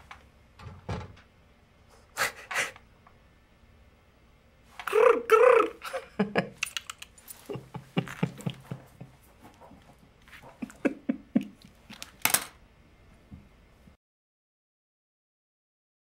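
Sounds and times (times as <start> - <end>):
sniffling intake of breath: 1.9 - 2.8
man sobbing: 4.8 - 6.6, 7.4 - 9.1, 10.4 - 11.7.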